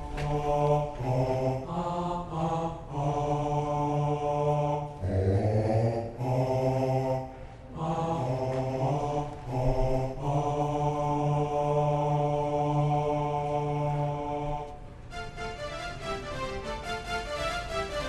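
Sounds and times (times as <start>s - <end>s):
keyboard music: 15.1s - 18.0s.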